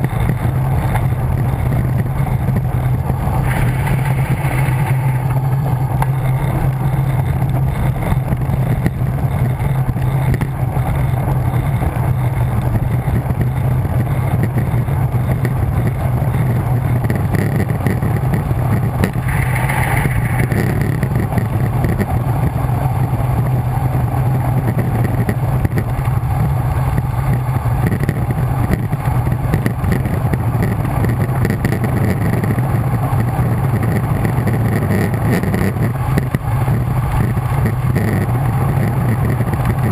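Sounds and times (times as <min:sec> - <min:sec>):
wind buffeting microphone: 0:00.0 - 0:31.4.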